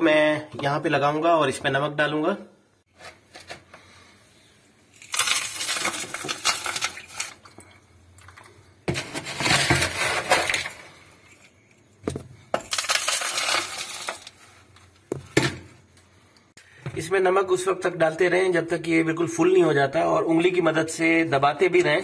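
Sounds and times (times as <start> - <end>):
rock salt pouring through funnel: 4.9 - 7.5, 12.6 - 14.6.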